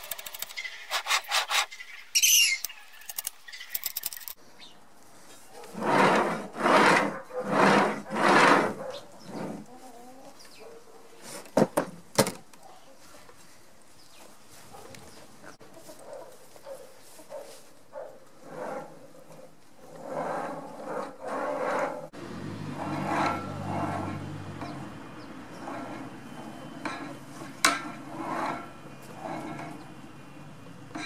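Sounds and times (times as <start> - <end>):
sharp metal clicks: 0.0 - 0.7, 2.4 - 4.4
metal carriage rolling on rail: 5.7 - 9.5, 19.8 - 31.0.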